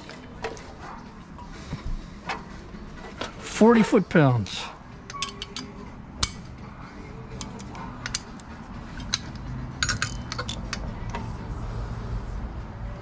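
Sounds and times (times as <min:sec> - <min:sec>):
socket wrench clicking on metal: 0:05.0 - 0:06.6, 0:07.3 - 0:11.2.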